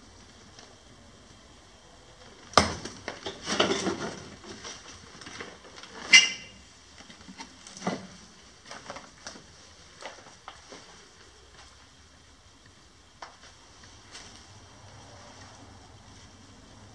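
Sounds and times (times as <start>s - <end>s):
debris knocking and clattering: 2.6s - 5.6s.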